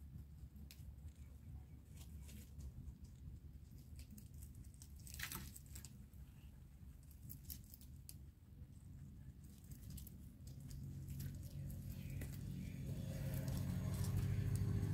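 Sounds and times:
rabbits chewing leaves: 0.0s - 14.9s
leaves being pulled: 9.5s - 14.9s.

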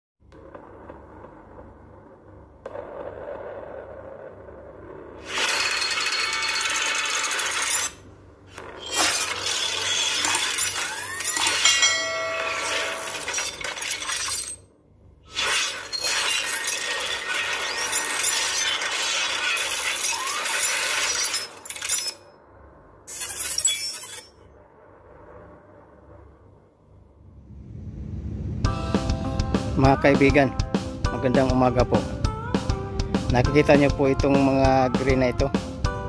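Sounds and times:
glass shattering and crackling: 8.6s - 14.7s, 15.3s - 22.3s.

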